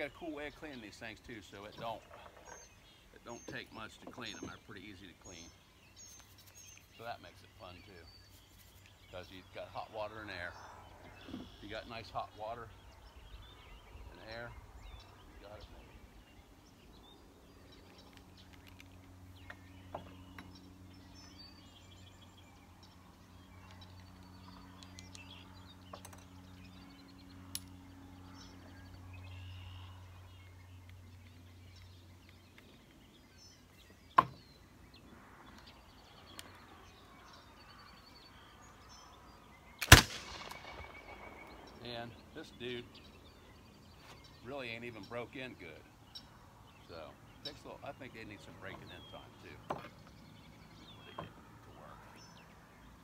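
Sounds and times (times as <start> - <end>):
birds chirping faintly: 0.0 - 53.0
ringing after gunshot: 39.8 - 41.3
flintlock pistol shot: 39.8 - 41.5.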